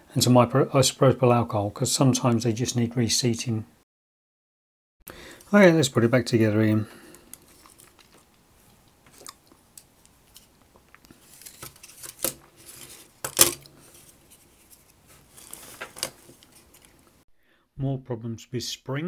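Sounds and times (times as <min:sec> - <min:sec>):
hands handling metal parts: 0:07.1 - 0:17.2.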